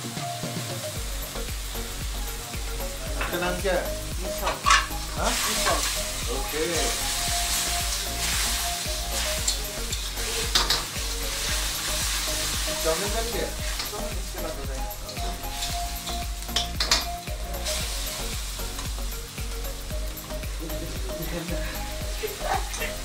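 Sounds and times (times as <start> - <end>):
food sizzling in a wok: 0.0 - 23.0
ladle scraping a wok: 4.4 - 6.1.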